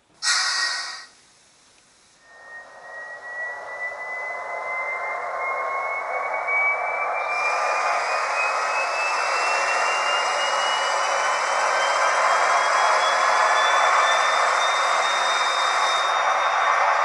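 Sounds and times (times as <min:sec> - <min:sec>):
rushing noise: 0:00.2 - 0:01.2, 0:02.2 - 0:17.0
turbine whine rising in pitch: 0:00.2 - 0:01.2, 0:02.2 - 0:17.0
air hiss: 0:00.2 - 0:02.3
high hiss: 0:00.2 - 0:02.8.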